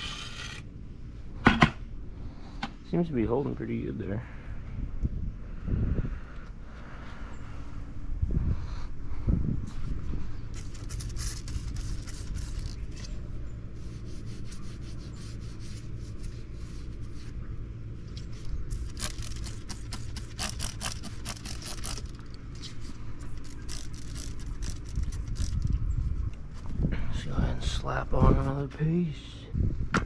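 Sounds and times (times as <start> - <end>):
steady low rumble: 0.0 - 30.0
spray bottle squirting: 10.6 - 12.8, 23.4 - 25.6.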